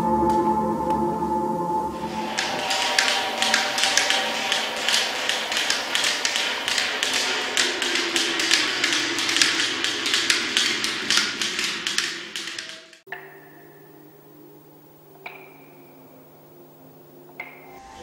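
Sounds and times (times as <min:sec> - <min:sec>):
rapid irregular tapping: 0:02.0 - 0:13.6.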